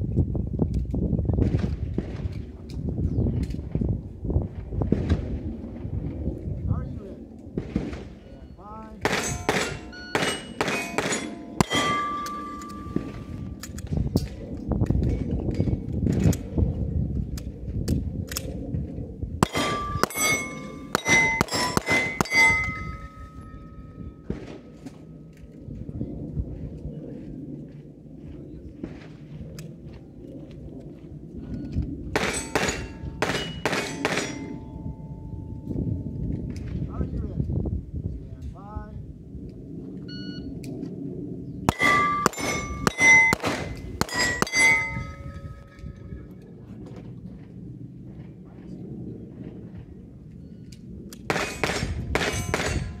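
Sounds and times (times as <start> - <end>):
pistol shots: 9.0 - 13.3, 19.4 - 23.2, 32.2 - 34.5, 41.7 - 45.0, 51.3 - 53.0
steel target plates clanging: 9.1 - 13.3, 19.4 - 23.4, 32.2 - 34.6, 41.7 - 45.7.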